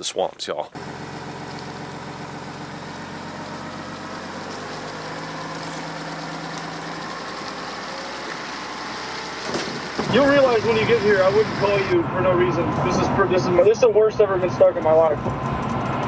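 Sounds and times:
truck engine running at low speed: 0.8s - 16.0s.

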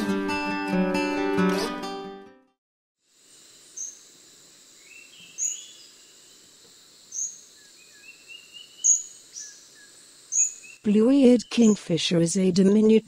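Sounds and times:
high insect hum: 3.0s - 13.0s
sharp high bird calls: 4.9s - 5.9s, 7.1s - 9.6s, 10.3s - 11.9s.

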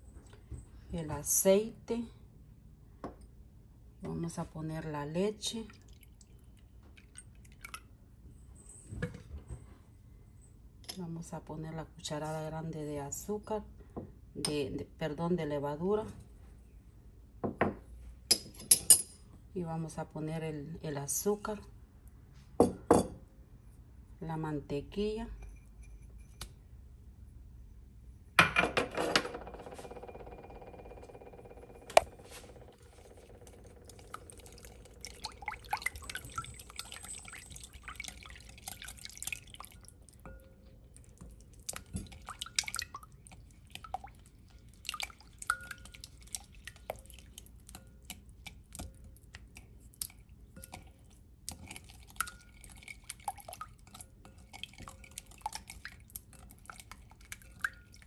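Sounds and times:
whisk stirring liquid sloshing: 32.0s - 58.0s
whisk clinking on glass bowl: 51.6s - 58.0s.

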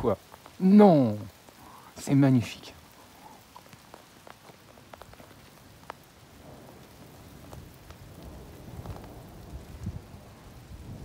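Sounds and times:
rain falling: 0.0s - 11.0s
raindrops ticking on a surface: 0.0s - 11.0s
low thunder rumble: 5.6s - 11.0s.

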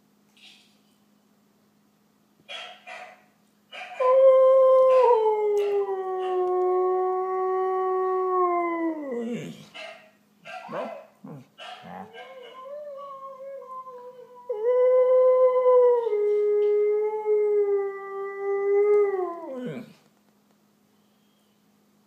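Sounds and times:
dog yelping: 3.8s - 4.0s, 9.4s - 12.7s
dog howling: 3.8s - 9.6s, 10.6s - 20.0s.

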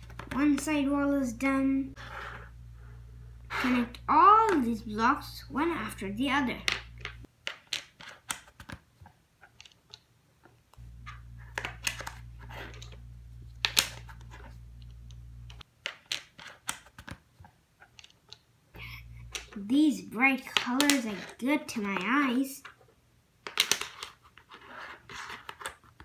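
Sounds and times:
low steady hum: 0.0s - 7.3s, 10.3s - 15.6s, 18.5s - 23.3s
plastic blocks clicking together: 6.7s - 8.8s, 17.8s - 18.5s, 20.6s - 21.4s, 23.4s - 24.2s
plastic block snap: 13.6s - 14.1s, 20.6s - 21.0s, 23.4s - 24.2s.

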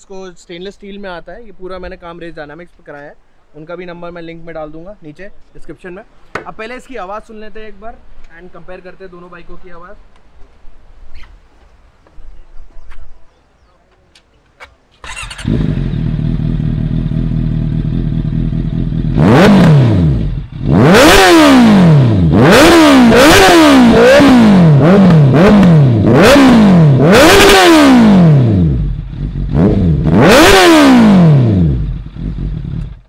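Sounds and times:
motorcycle engine revving: 15.0s - 33.0s
motorcycle engine starting and idling: 15.0s - 33.0s.

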